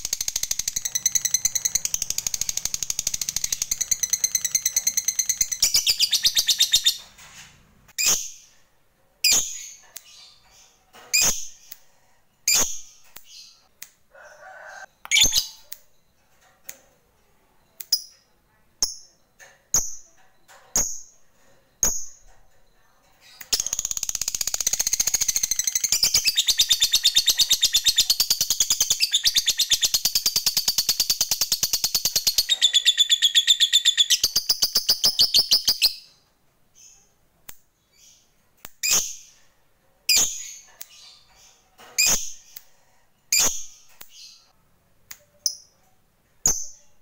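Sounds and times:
bird chirps: 0.0 - 7.1, 17.6 - 37.2.

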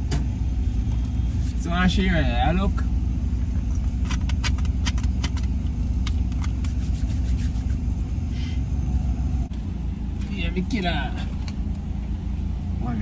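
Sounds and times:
car engine rumbling: 0.0 - 13.0
sharp clicks and rattles: 3.5 - 6.8.

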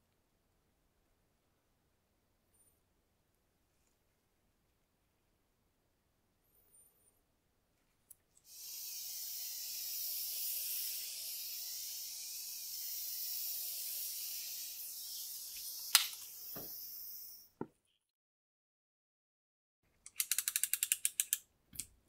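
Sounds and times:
heat gun hissing: 8.5 - 17.6
sharp click: 15.6 - 16.3.

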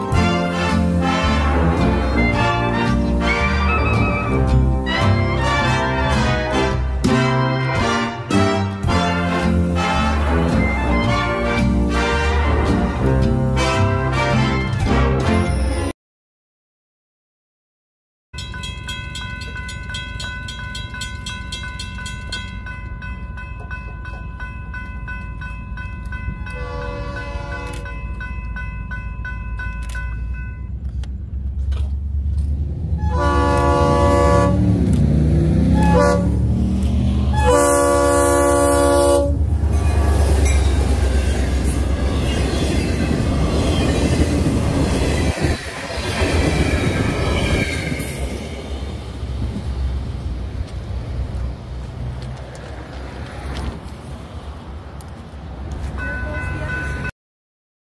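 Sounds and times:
train horn blasts: 0.0 - 15.8, 26.5 - 27.9, 33.0 - 34.8, 35.6 - 36.6, 37.2 - 39.5
train rumbling past on rails: 0.0 - 15.9, 18.4 - 57.1
crossing bells ringing: 18.4 - 31.1, 55.8 - 57.1.

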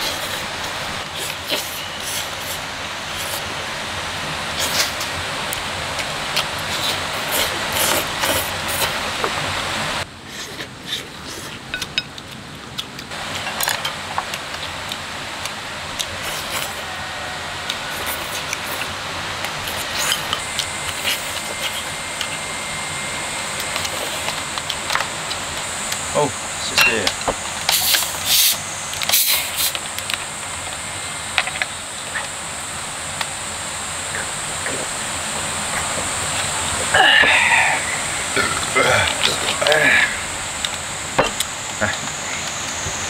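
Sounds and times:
steady background hiss: 0.0 - 43.0
person chewing meat: 4.6 - 9.4, 10.2 - 26.0.

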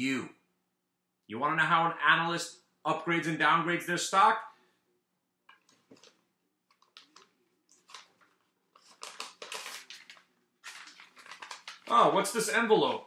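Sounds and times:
paper rustling: 5.6 - 13.0.

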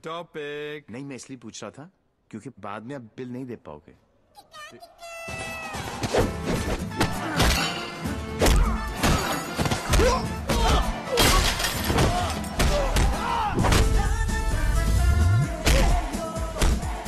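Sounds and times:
action background music: 5.7 - 17.0
punch hits and crashing impacts: 8.4 - 14.0.

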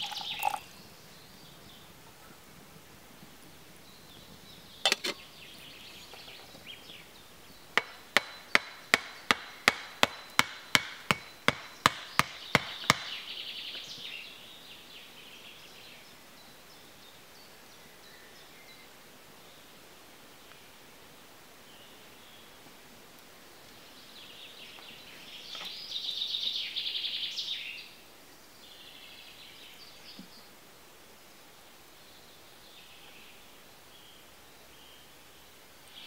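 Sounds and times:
hammer knocking wooden stake: 7.8 - 13.2.

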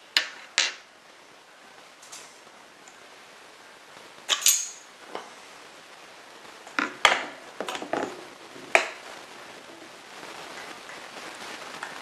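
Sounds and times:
rifle parts clicking and clacking: 4.3 - 4.8.

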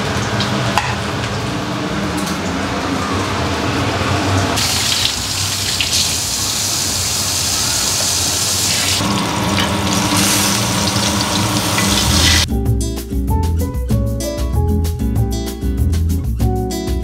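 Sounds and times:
fish sizzling in hot oil: 4.6 - 12.5.

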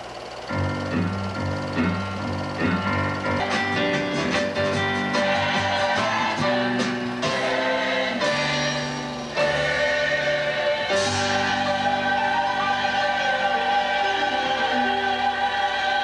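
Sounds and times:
choir singing sustained notes: 5.1 - 16.0.

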